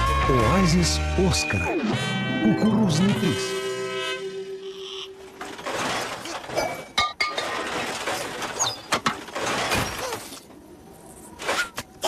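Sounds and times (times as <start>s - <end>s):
short high-pitched squeaks: 4.6s - 10.4s
tin cans and scrap clattering: 5.4s - 10.5s.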